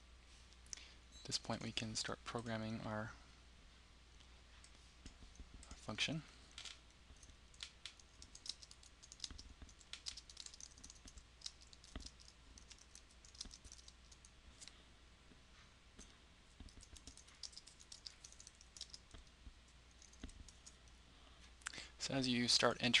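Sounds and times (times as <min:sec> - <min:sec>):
typing on a computer keyboard: 0:06.6 - 0:14.3, 0:16.6 - 0:20.9.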